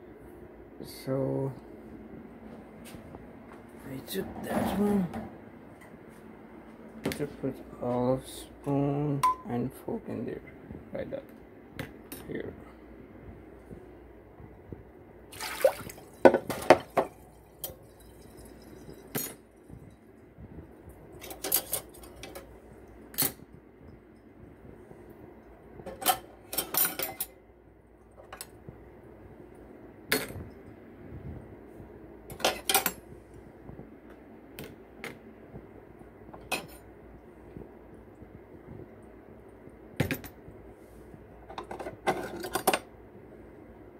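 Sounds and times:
cutlery and dishes clinking: 0:25.9 - 0:27.4, 0:32.3 - 0:33.0, 0:36.4 - 0:36.8.

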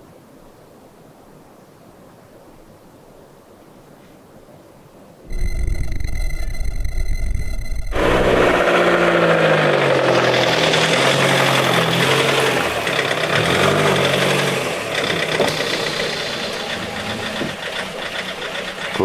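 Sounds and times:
van engine running: 0:07.8 - 0:19.0.

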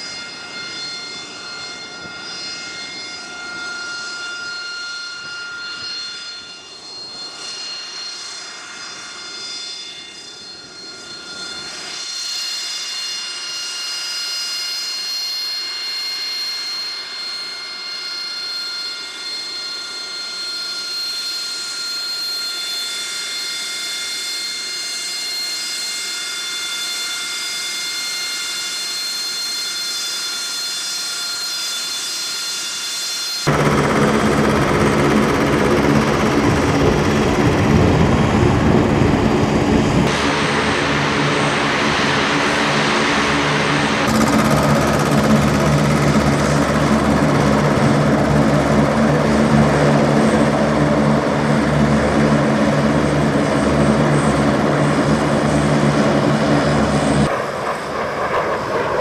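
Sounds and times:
jet engine idling whine: 0:00.0 - 0:59.0
ground equipment engine noise: 0:33.5 - 0:59.0.

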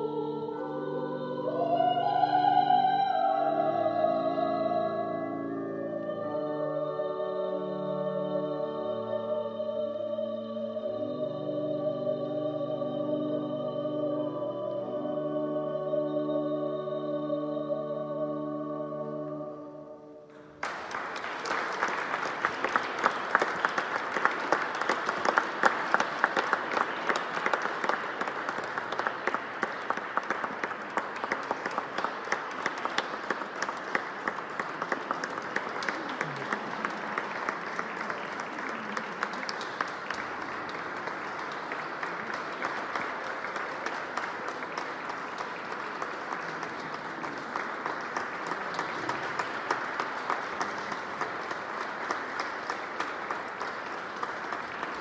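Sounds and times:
pipe organ chord: 0:00.0 - 0:20.3
audience applauding: 0:20.4 - 0:55.0.

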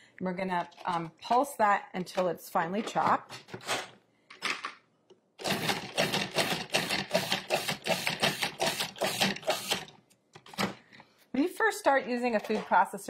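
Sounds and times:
food processor pulsing: 0:05.4 - 0:09.8.

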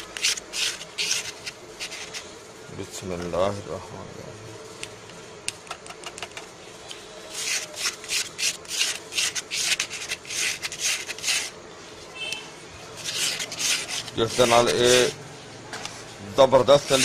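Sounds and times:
plastic spoon scraping stone mortar: 0:00.0 - 0:02.3, 0:07.3 - 0:11.6, 0:12.9 - 0:15.2, 0:16.7 - 0:17.0.

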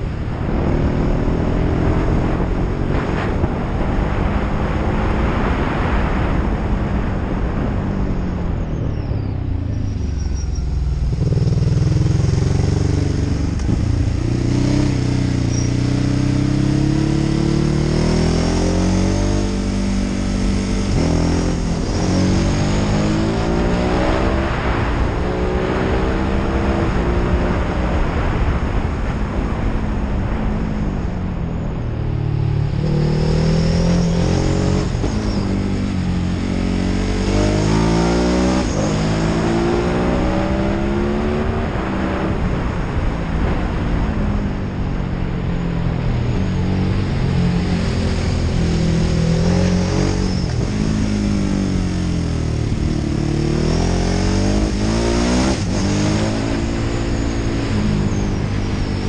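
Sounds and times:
motorcycle engine revving: 0:00.0 - 0:07.6, 0:09.5 - 0:30.7, 0:31.8 - 0:44.8, 0:45.5 - 0:59.0.

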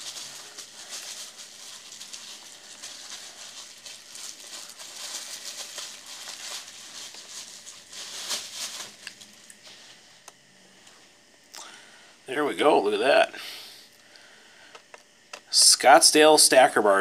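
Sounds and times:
bubble wrap crinkling: 0:00.0 - 0:10.0.

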